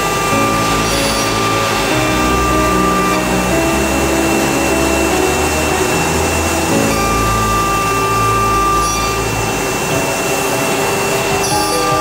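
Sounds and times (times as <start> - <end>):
vacuum-like rush: 0.0 - 11.9
cnc router spindle whine: 0.0 - 12.0
low machine tones: 0.0 - 12.0.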